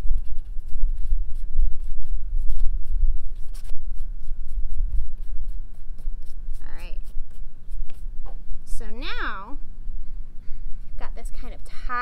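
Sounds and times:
fingers rubbing wet paper: 0.0s - 8.0s
wind rumble on microphone: 0.0s - 11.9s.

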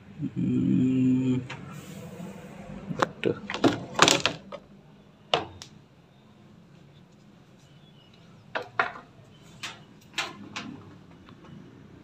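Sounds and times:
plastic panels knocking and clattering: 3.5s - 4.6s, 5.3s - 5.7s, 8.6s - 11.2s.

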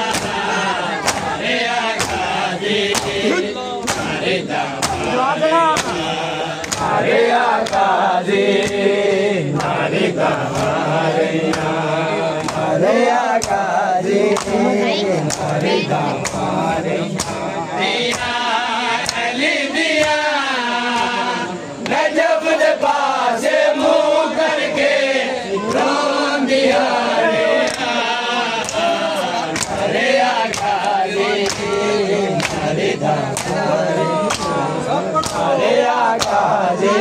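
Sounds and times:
hands slapping chests: 0.0s - 1.4s, 2.0s - 4.2s, 4.8s - 7.0s, 7.6s - 8.9s, 10.4s - 11.8s, 12.4s - 13.7s, 14.3s - 14.6s, 15.2s - 16.5s, 17.1s - 17.5s, 18.1s - 18.4s, 19.0s - 19.3s, 20.9s - 21.2s, 27.6s - 28.0s, 28.6s - 34.6s, 35.2s - 35.5s, 36.1s - 36.5s
men chanting in unison: 0.0s - 37.0s.

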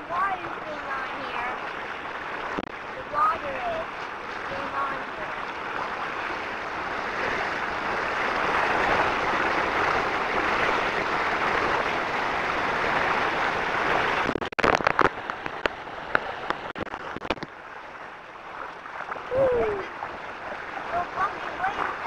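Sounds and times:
wind and water rush on microphone: 0.0s - 22.0s
microphone crackles and pops: 2.4s - 2.9s, 13.9s - 17.6s.

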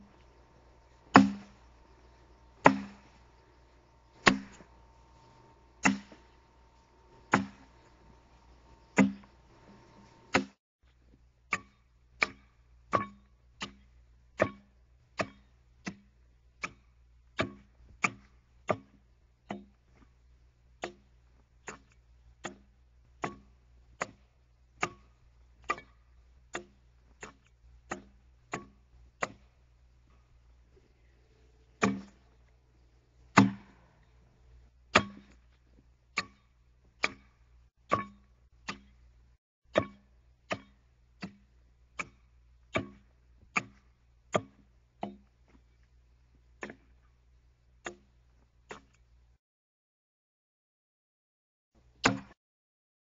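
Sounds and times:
axe striking log: 1.1s - 1.7s, 2.6s - 3.4s, 4.1s - 8.0s, 8.7s - 9.4s, 10.0s - 10.6s, 11.5s - 13.8s, 14.4s - 16.1s, 17.4s - 19.7s, 21.8s - 24.2s, 26.6s - 29.4s, 31.8s - 32.2s, 33.3s - 33.9s, 34.9s - 35.4s, 36.2s - 37.3s, 37.9s - 38.9s, 39.7s - 45.2s, 52.0s - 52.4s.

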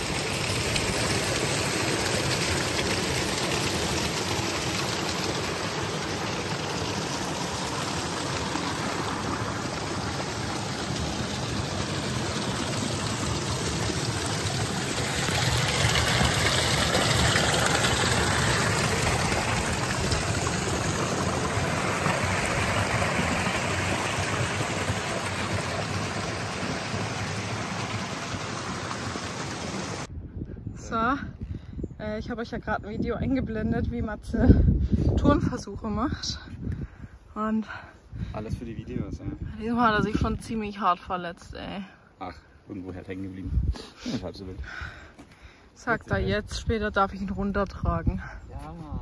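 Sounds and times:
stream rushing over rocks: 0.0s - 30.1s.

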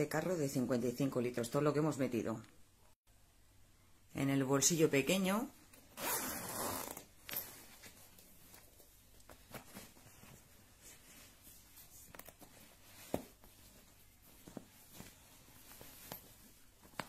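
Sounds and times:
fabric rustling and tapping: 7.2s - 17.0s.

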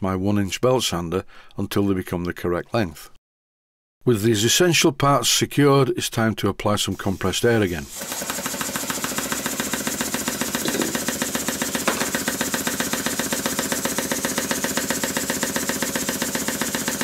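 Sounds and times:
model steam engine rattling: 7.9s - 17.0s.

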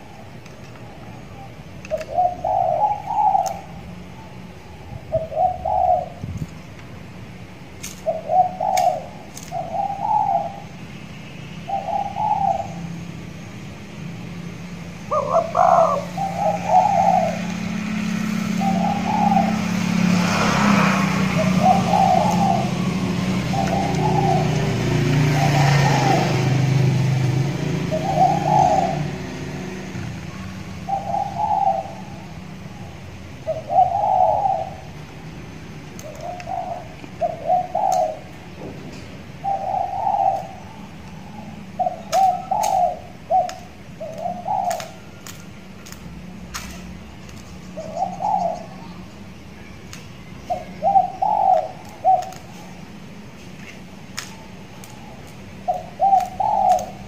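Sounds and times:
dove cooing: 0.0s - 6.4s, 7.9s - 10.7s, 11.7s - 12.8s, 15.1s - 20.5s, 21.3s - 27.2s, 27.8s - 29.2s, 30.3s - 35.0s, 36.0s - 45.3s, 47.6s - 49.1s, 50.4s - 52.9s, 54.4s - 57.0s.

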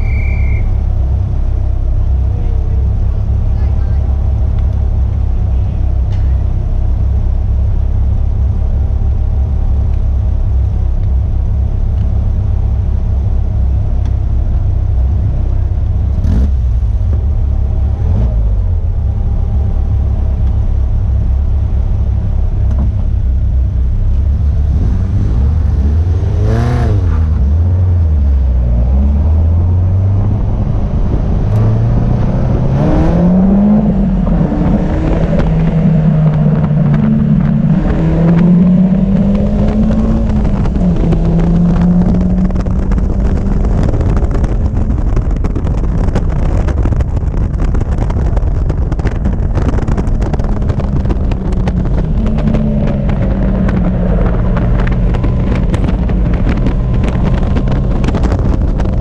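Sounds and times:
car engine idling: 0.0s - 59.0s
engine revs rising: 16.1s - 20.6s, 24.2s - 44.8s.

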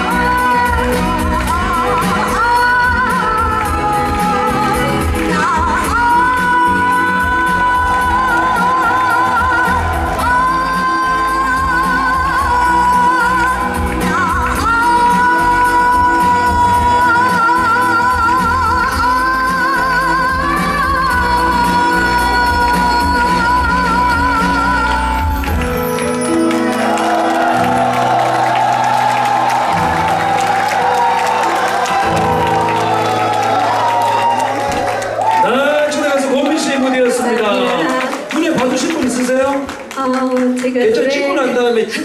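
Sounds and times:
woman singing into a microphone: 0.0s - 25.8s
backing music: 0.0s - 39.8s
audience cheering: 25.9s - 39.6s.

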